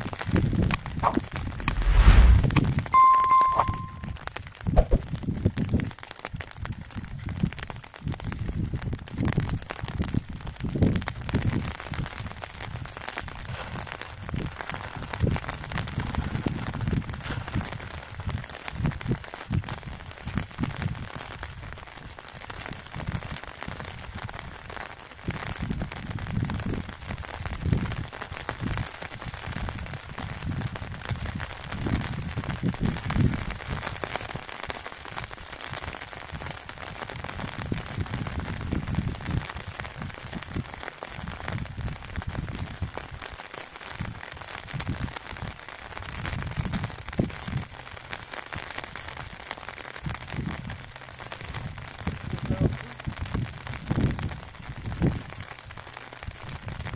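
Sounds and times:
rain falling: 0.0s - 56.9s
low rumbles: 1.0s - 2.9s.

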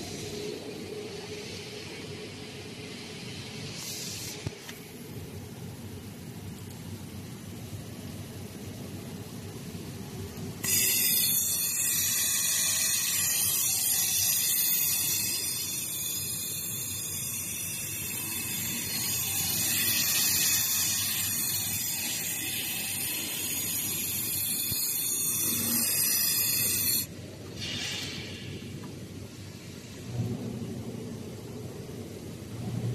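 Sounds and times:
laser welder hiss: 3.6s - 5.2s, 10.6s - 29.0s.

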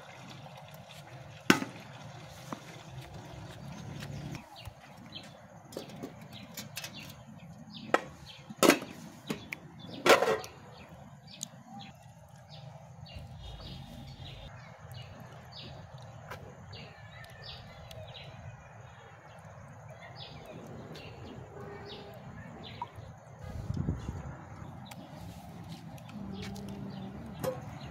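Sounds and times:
rice swishing in pot of water: 0.0s - 4.4s
small birds chirping: 3.1s - 27.9s.

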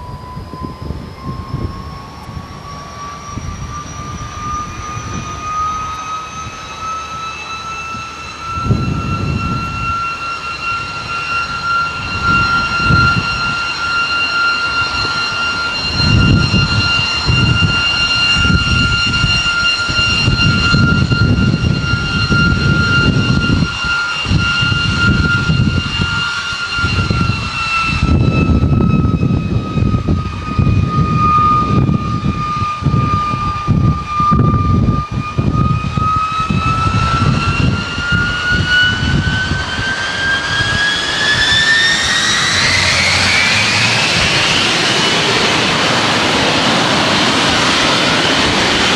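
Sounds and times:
jet engine whining: 0.0s - 48.9s
low rumble: 14.6s - 48.9s.

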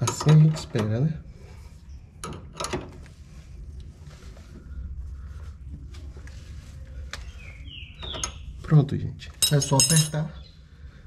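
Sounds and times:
low steady rumble: 0.0s - 9.9s.

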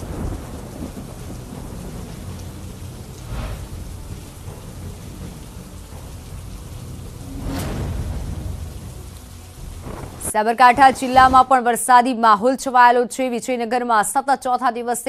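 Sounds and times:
thunder rumbling: 0.0s - 11.9s
rain falling: 0.0s - 12.0s.

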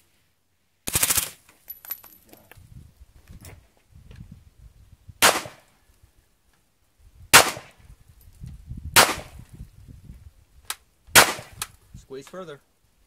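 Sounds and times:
gunshots: 5.2s - 5.7s, 7.3s - 7.8s, 9.0s - 9.4s, 11.2s - 11.6s.

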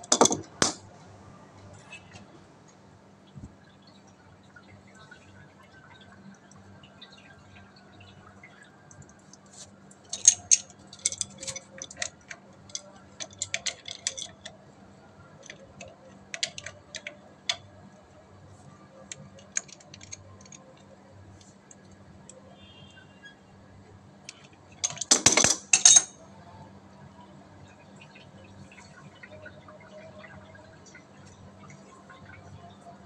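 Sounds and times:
wrench clicking on pipe fittings: 10.1s - 14.5s, 15.4s - 17.6s, 19.1s - 20.6s, 24.3s - 26.1s.

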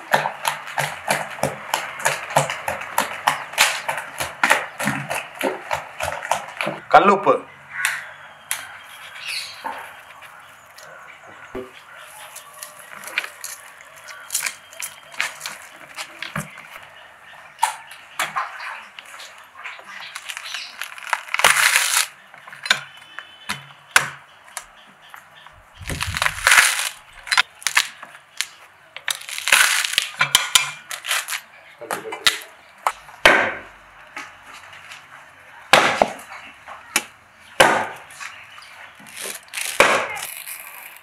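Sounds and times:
coconut husk cracking and tearing: 12.3s - 16.5s, 19.0s - 22.7s, 25.8s - 31.5s, 39.0s - 41.0s.

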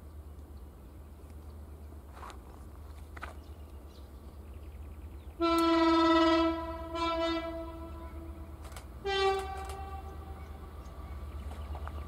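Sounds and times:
diesel locomotive horn blasts: 5.4s - 10.6s.

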